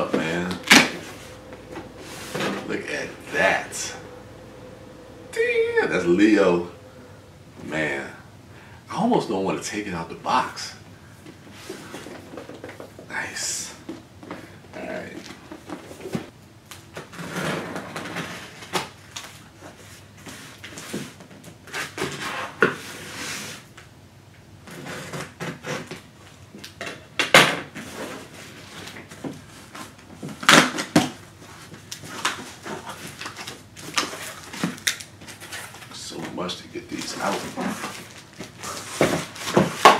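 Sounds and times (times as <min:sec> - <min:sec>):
cardboard rustling and scraping: 0:37.0 - 0:39.9.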